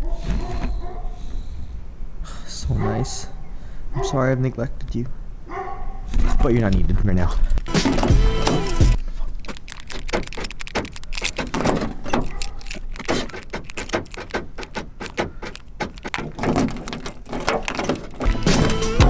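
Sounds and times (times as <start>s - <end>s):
keys jangling: 7.6s - 19.0s
key clicking in door lock: 8.0s - 18.4s.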